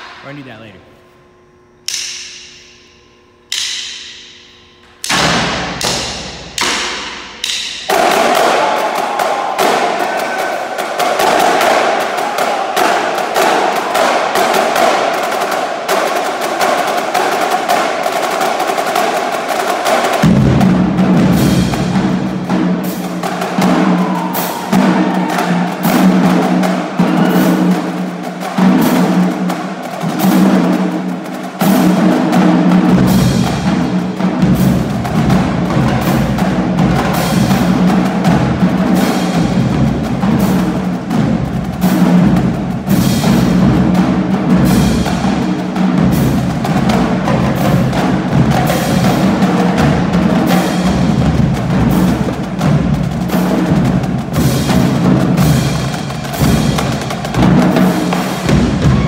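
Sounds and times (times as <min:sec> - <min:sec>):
marching drumline playing: 0:00.0 - 0:00.7, 0:05.0 - 0:59.0
low drum notes: 0:19.9 - 0:59.0.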